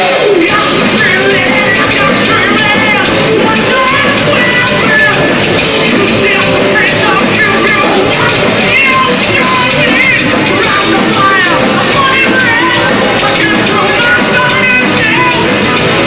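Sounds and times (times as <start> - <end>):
bass guitar: 0.0 - 16.0
drum kit with crashing cymbals: 0.0 - 16.0
electric guitar: 0.0 - 16.0
person singing: 0.0 - 16.0.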